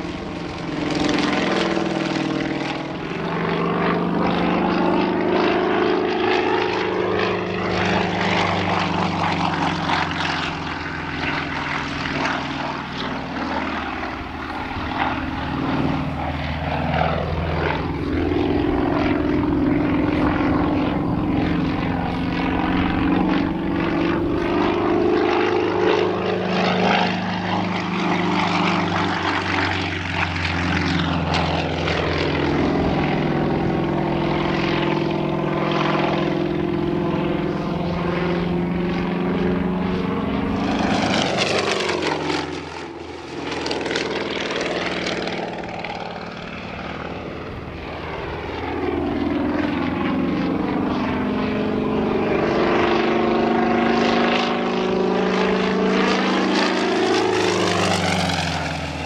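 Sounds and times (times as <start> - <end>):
radial aircraft engine and propeller: 0.0 - 59.0.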